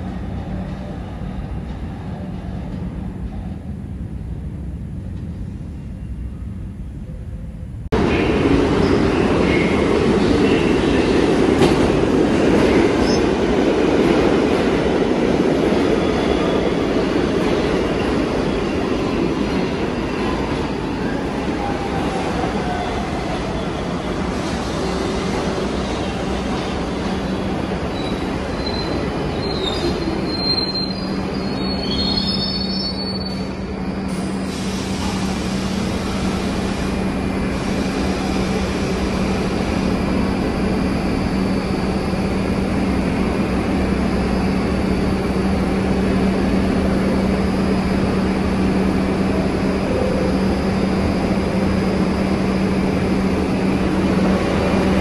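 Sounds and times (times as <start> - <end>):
train wheels rumbling over rails: 8.0 - 31.8
wheel and brake squeals: 27.9 - 33.5.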